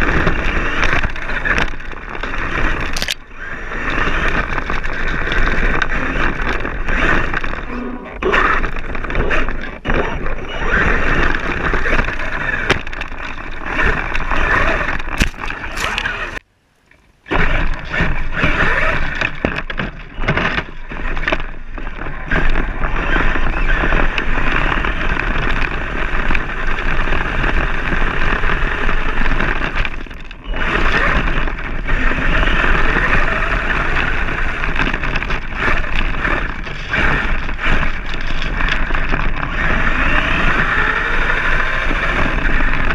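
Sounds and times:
rattling rumble of toy truck: 0:00.0 - 0:16.4, 0:17.0 - 0:42.9
knocks and jolts: 0:11.4 - 0:16.4.

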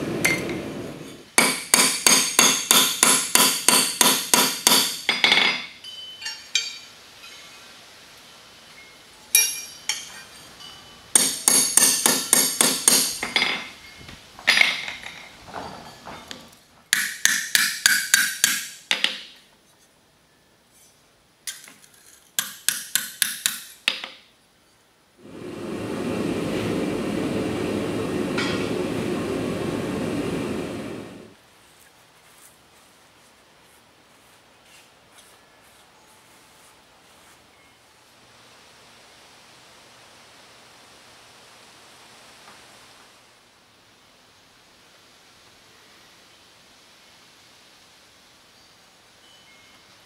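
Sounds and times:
hammer striking metal on anvil: 0:01.4 - 0:06.9, 0:09.4 - 0:10.1, 0:11.1 - 0:13.6, 0:16.9 - 0:18.8.

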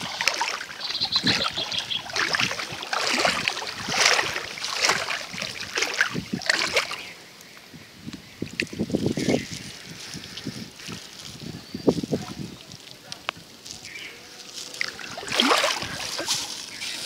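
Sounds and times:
water splashing and sloshing: 0:00.0 - 0:07.2, 0:14.6 - 0:17.0.

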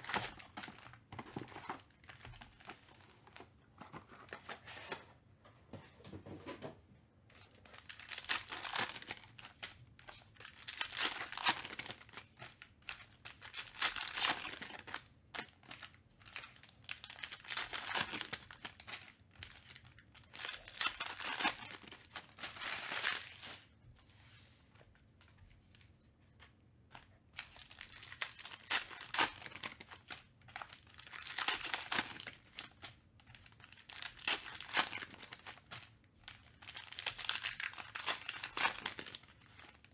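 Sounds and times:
foil wrappers tearing: 0:36.5 - 0:39.8.

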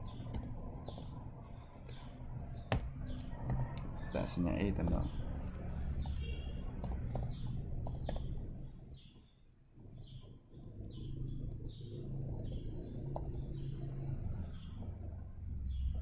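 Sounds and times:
small bird chirping: 0:00.0 - 0:04.2, 0:04.8 - 0:16.0
low steady hum: 0:00.0 - 0:16.0
computer keyboard keys clicking: 0:00.2 - 0:01.2, 0:02.7 - 0:03.9, 0:04.8 - 0:06.2, 0:06.8 - 0:08.3, 0:10.6 - 0:11.6, 0:12.3 - 0:13.5.

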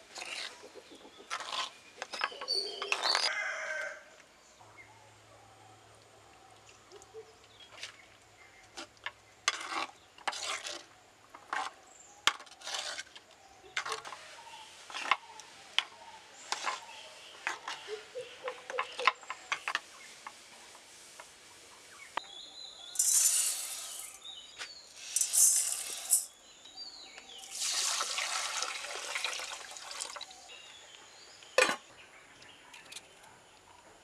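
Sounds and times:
metal spoon scraping a bowl: 0:00.1 - 0:00.6, 0:09.4 - 0:10.9, 0:11.5 - 0:14.2, 0:16.5 - 0:16.9, 0:23.0 - 0:24.2, 0:25.1 - 0:26.3.

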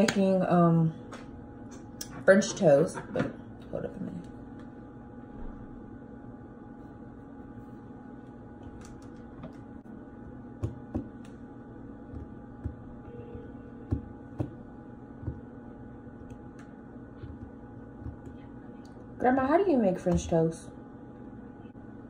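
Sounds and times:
steady background hum: 0:00.0 - 0:22.0
fingers tapping on countertop: 0:10.6 - 0:11.4, 0:12.1 - 0:14.6, 0:15.2 - 0:15.5, 0:16.2 - 0:18.4.

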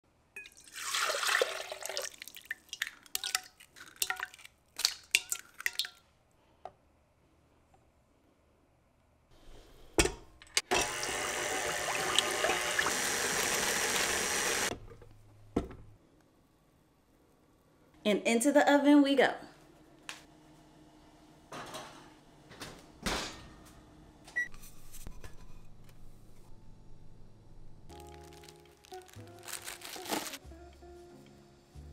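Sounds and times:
butter pouring and splashing: 0:00.4 - 0:06.0.

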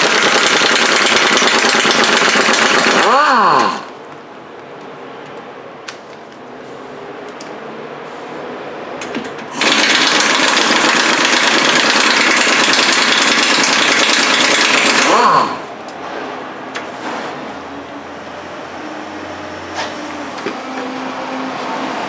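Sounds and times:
air impact wrench hammering: 0:00.0 - 0:03.9, 0:09.5 - 0:15.7.

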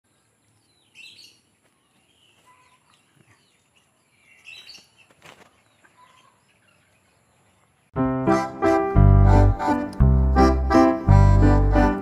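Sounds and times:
birds chirping faintly: 0:00.1 - 0:08.0.

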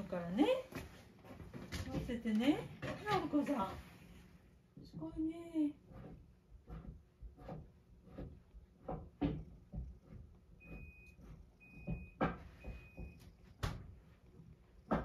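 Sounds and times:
knife chopping on cutting board: 0:05.9 - 0:10.2.

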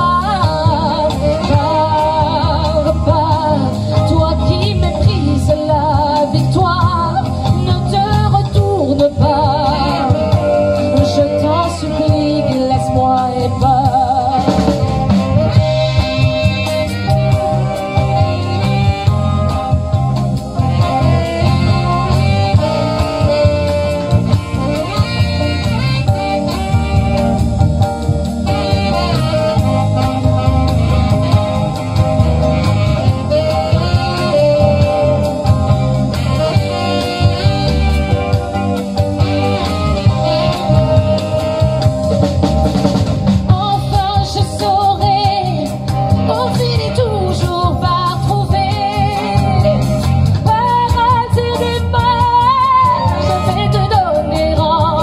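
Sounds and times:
woman singing: 0:00.0 - 0:16.8, 0:43.5 - 0:55.0
live band playing: 0:00.0 - 0:55.0.

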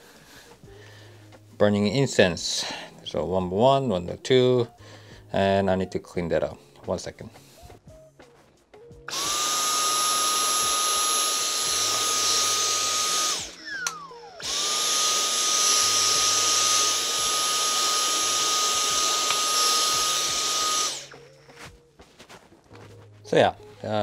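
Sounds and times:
vacuum cleaner whining: 0:09.1 - 0:21.2.

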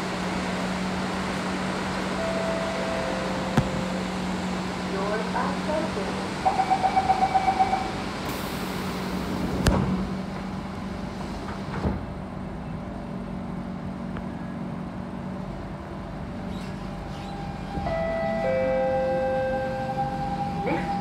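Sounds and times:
train humming: 0:00.0 - 0:21.0
train doors closing thump: 0:03.2 - 0:04.2.

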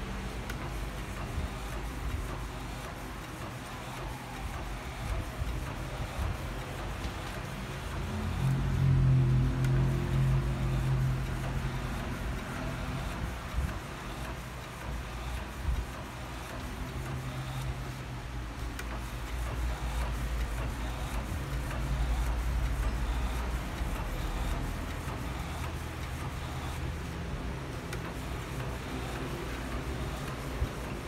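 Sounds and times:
printer humming with ticks: 0:00.0 - 0:31.0.

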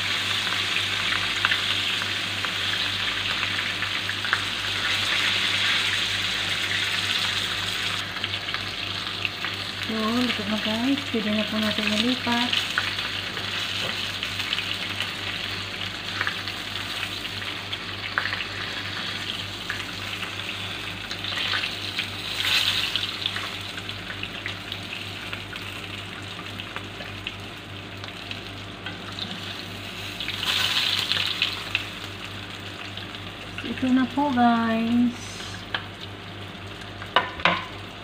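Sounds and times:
exhaust fan humming: 0:00.0 - 0:38.0
fish sizzling in hot oil: 0:00.0 - 0:38.0.

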